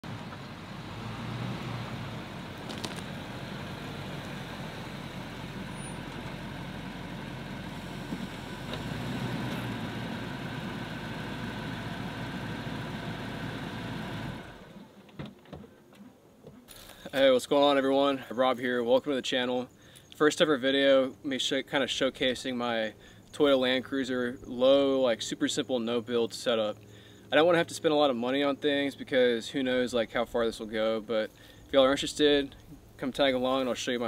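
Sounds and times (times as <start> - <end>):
engine running and idling: 0.0 - 14.9.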